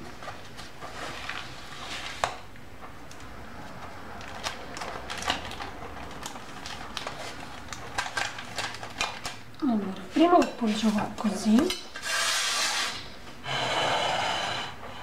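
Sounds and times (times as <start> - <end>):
knife scraping metal: 12.0 - 13.1.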